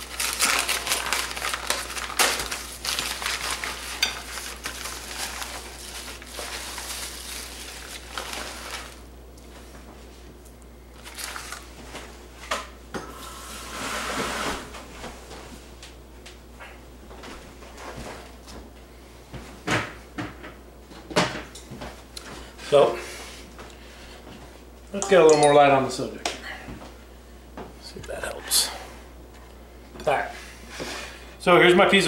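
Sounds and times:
wrapping paper crinkling: 0:00.0 - 0:09.1, 0:11.0 - 0:11.9.

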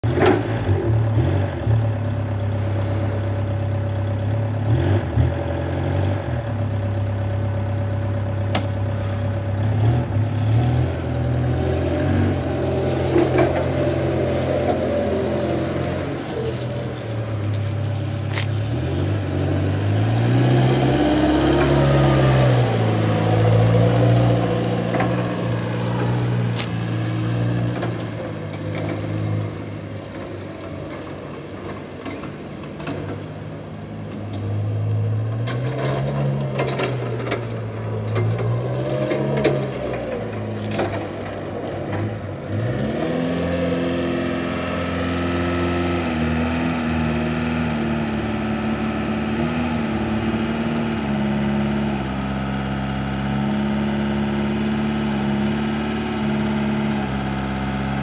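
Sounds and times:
forklift engine running: 0:00.0 - 0:58.0.

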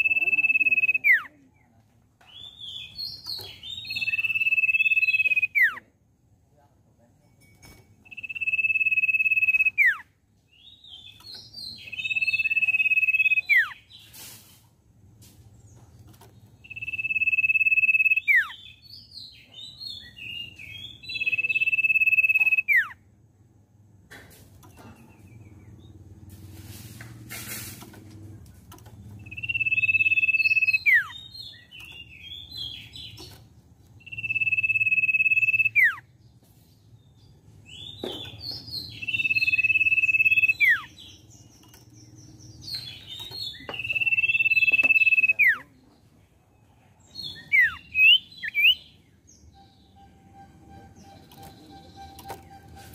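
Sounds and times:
bird whistling: 0:00.0 - 0:01.2, 0:03.9 - 0:05.8, 0:08.1 - 0:10.0, 0:16.6 - 0:18.6, 0:21.3 - 0:23.0, 0:29.2 - 0:31.3, 0:34.0 - 0:36.0, 0:38.9 - 0:41.0, 0:42.9 - 0:45.7, 0:47.4 - 0:48.9
bird chattering notes: 0:29.2 - 0:33.3, 0:38.8 - 0:41.2, 0:42.5 - 0:45.7.

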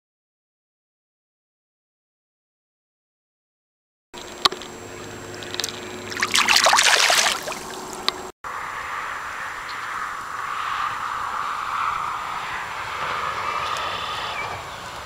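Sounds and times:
fish splashing in water: 0:06.0 - 0:08.1
river water rushing over riffle: 0:06.1 - 0:08.0.

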